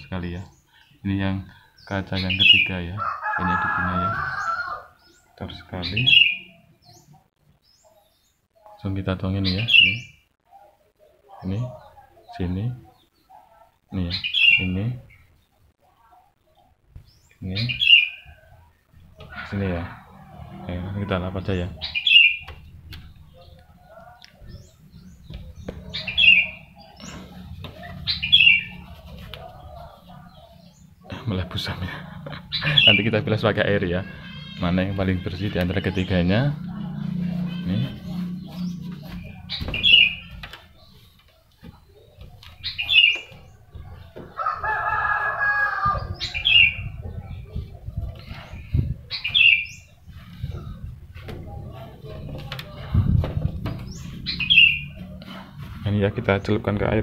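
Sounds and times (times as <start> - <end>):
songbird chirping: 0.0 - 57.0
rooster crowing: 2.9 - 5.0, 44.2 - 46.6
steady low hum: 35.6 - 41.2.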